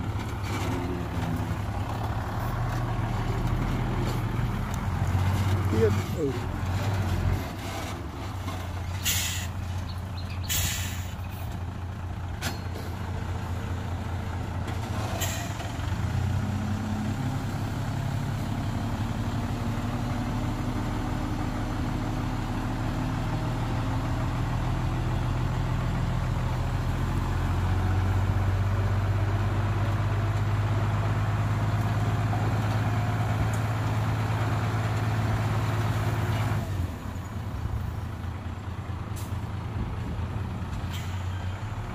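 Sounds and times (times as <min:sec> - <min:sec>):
diesel truck engine running: 0:00.0 - 0:41.9
air brake hisses: 0:09.0 - 0:09.5, 0:10.5 - 0:11.2.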